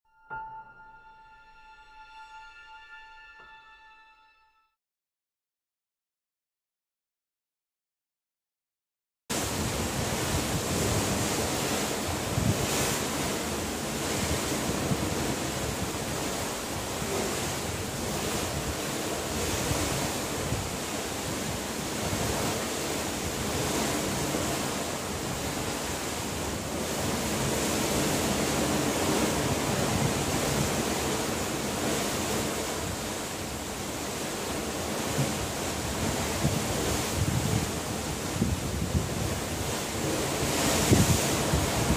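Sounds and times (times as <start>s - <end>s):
open sea wash: 9.3s - 41.9s
wind on microphone: 9.3s - 41.9s.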